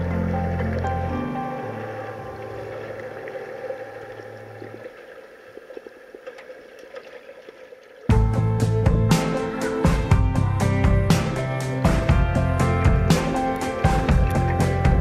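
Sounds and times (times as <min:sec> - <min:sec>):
guitar music: 0:00.0 - 0:03.0, 0:08.1 - 0:15.0
background music with held notes: 0:00.0 - 0:04.9, 0:08.1 - 0:15.0.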